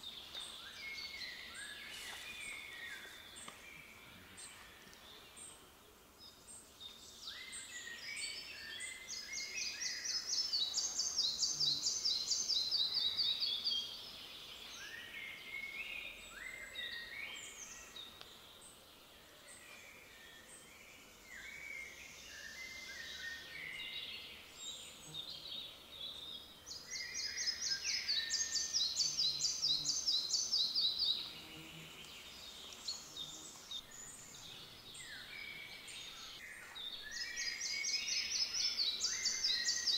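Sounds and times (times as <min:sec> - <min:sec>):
songbirds singing faintly: 0:00.0 - 0:39.9
flycatcher singing: 0:21.3 - 0:39.9.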